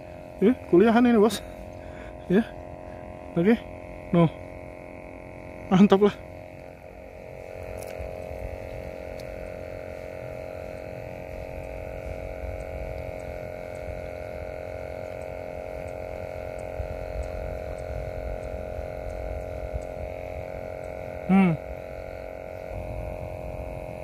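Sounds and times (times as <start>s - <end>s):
droning hum of held tones: 0.0s - 24.0s.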